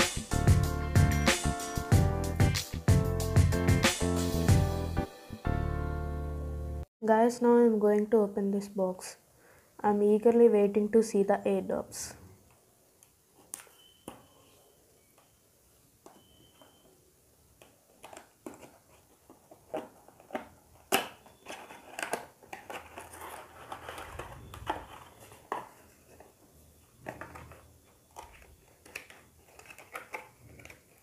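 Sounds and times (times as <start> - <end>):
cardboard rustling and sliding: 21.5 - 26.4.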